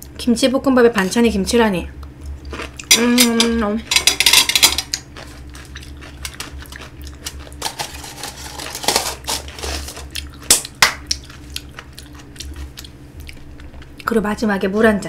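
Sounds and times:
aluminium foil crinkling: 0:02.5 - 0:12.6
jar and chopsticks clattering: 0:02.9 - 0:05.0.

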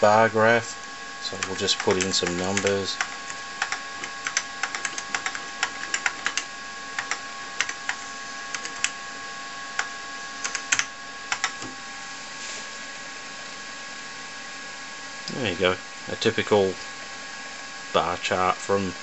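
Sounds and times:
faint steady whine: 0:00.0 - 0:19.0
keyboard keys clicking: 0:01.3 - 0:08.9, 0:10.4 - 0:11.6.

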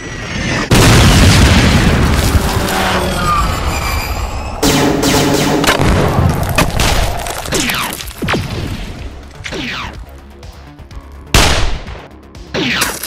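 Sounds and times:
shots with falling pitch: 0:00.6 - 0:10.0
battle blasts: 0:00.7 - 0:09.8
background music: 0:04.6 - 0:13.0.

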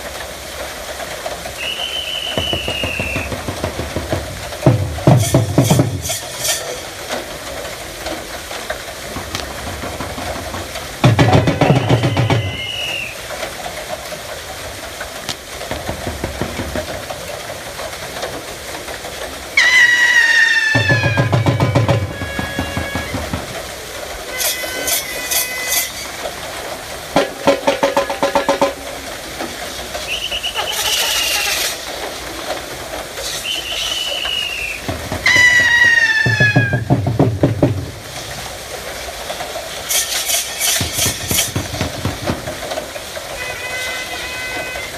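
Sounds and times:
water wheel gearing clattering: 0:00.0 - 0:44.9
high shrill falling calls: 0:01.6 - 0:03.4, 0:11.5 - 0:13.2, 0:19.6 - 0:23.3, 0:24.3 - 0:26.2, 0:30.1 - 0:31.9, 0:33.2 - 0:36.8.

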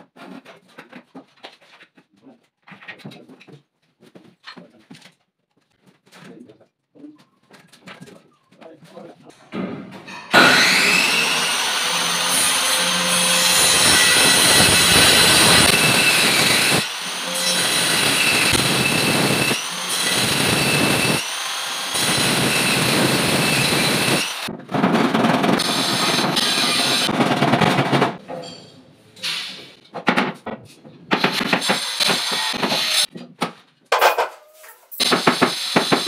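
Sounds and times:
circular saw cutting board: 0:10.1 - 0:24.5.

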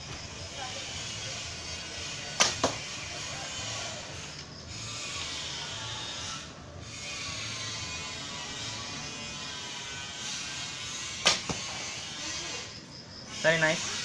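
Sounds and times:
bowstring snapping: 0:02.4 - 0:02.8, 0:11.2 - 0:11.6.

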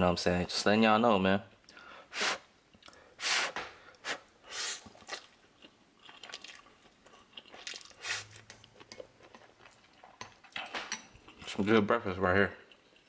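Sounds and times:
person chewing: 0:02.7 - 0:03.1, 0:03.9 - 0:11.5, 0:12.6 - 0:13.0
person slurping noodles: 0:03.2 - 0:05.3, 0:07.6 - 0:08.4.

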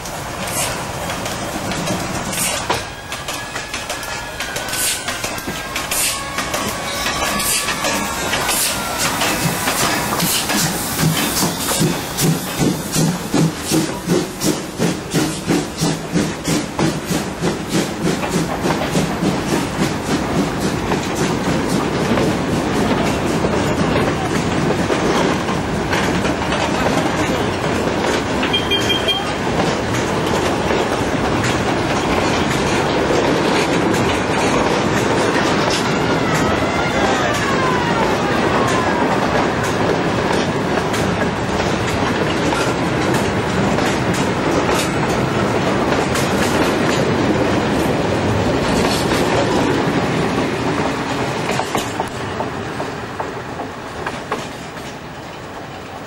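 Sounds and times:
steam locomotive chuffing: 0:00.0 - 0:36.6
wagons rumbling and clattering: 0:00.1 - 0:36.1, 0:37.3 - 0:55.7.

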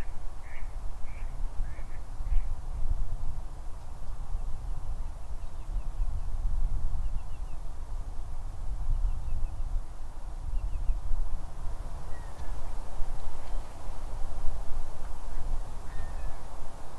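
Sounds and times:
distant waterfowl murmur: 0:00.0 - 0:02.6
wind rumble on microphone: 0:00.0 - 0:16.9.

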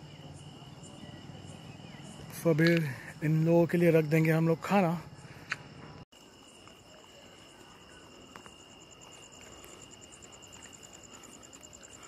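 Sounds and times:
insects trilling: 0:00.0 - 0:12.0
pulsing insect chirp: 0:00.0 - 0:12.0.

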